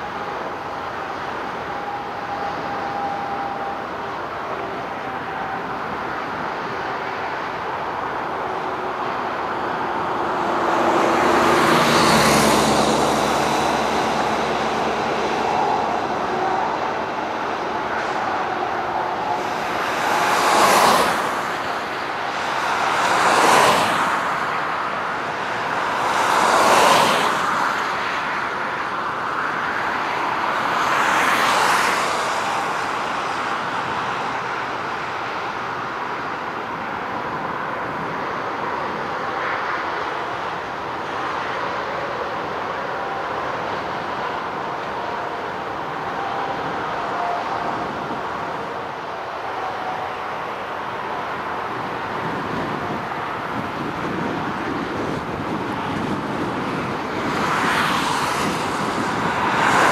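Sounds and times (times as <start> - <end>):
strong wind: 0.0 - 59.9.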